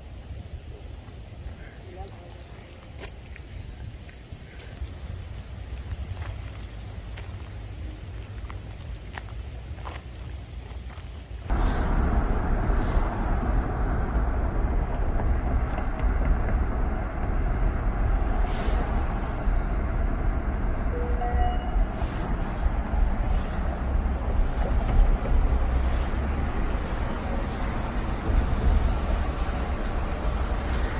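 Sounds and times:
tyres and engine rumble: 0.0s - 30.9s
wind hiss: 0.0s - 30.9s
faint tone: 20.8s - 21.9s.

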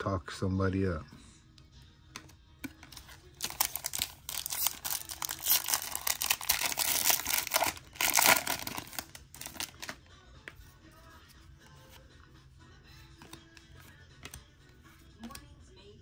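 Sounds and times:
cards rustling: 2.1s - 15.6s
wrapper crinkling and tearing: 3.0s - 10.0s.

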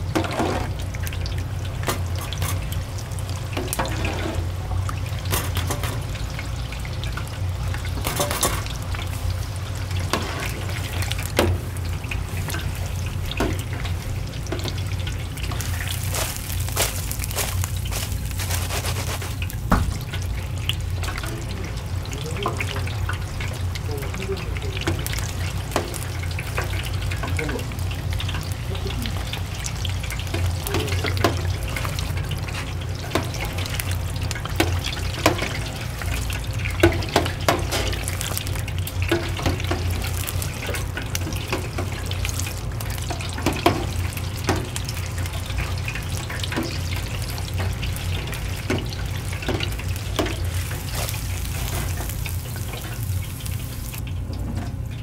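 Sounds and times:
utensils and cookware clinking: 1.8s - 2.8s, 3.5s - 6.4s, 7.1s - 8.9s, 24.0s - 54.0s.

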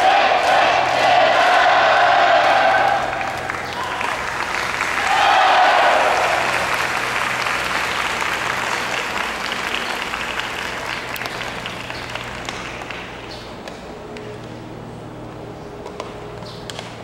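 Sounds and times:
stadium crowd applauding: 0.0s - 13.6s.

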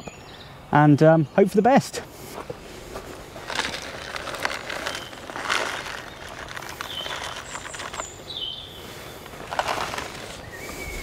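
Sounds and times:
plastic bag rustling: 2.7s - 8.2s, 8.8s - 11.0s
food pellets poured into log: 3.5s - 8.0s, 9.4s - 10.4s.

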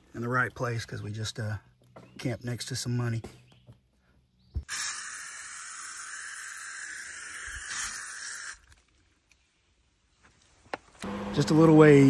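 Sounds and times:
aerosol spray hissing: 4.7s - 8.6s.

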